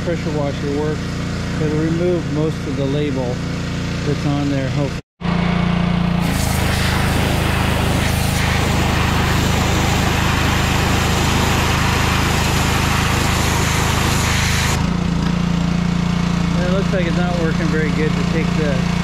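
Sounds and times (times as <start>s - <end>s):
pressure washer jet hissing: 6.1s - 14.8s.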